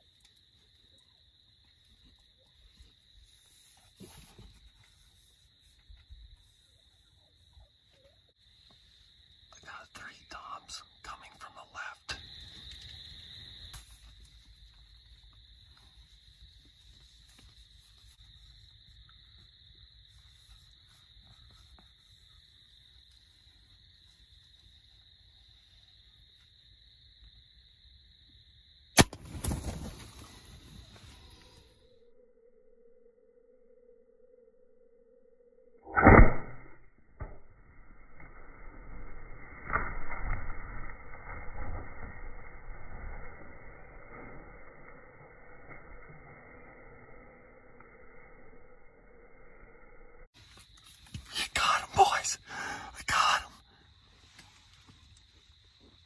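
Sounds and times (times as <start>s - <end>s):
wings flapping: 29.0s - 31.5s
rustling and scuffling: 29.2s - 31.4s
bow release and arrow striking: 35.8s - 42.5s.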